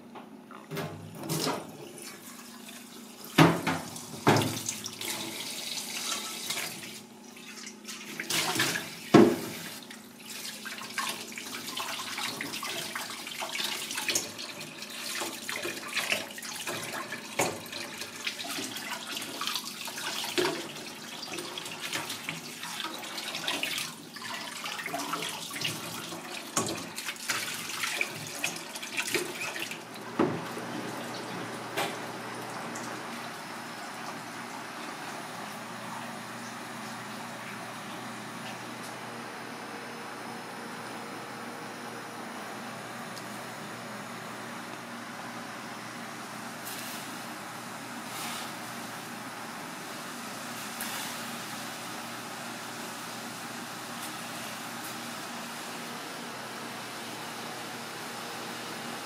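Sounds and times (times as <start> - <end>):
tap water running into metal pan: 7.6 - 30.8.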